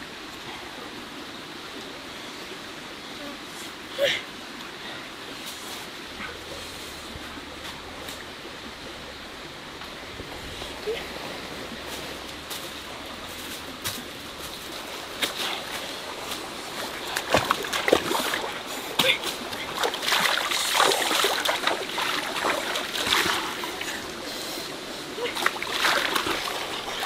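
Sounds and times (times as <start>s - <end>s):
stream flowing over rocks: 0.0s - 27.0s
splashing in shallow water: 10.2s - 27.0s.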